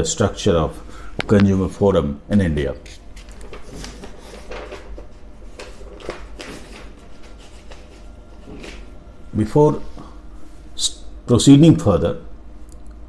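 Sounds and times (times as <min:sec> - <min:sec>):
steady low hum: 0:00.0 - 0:13.0
paper rustling: 0:02.8 - 0:08.9.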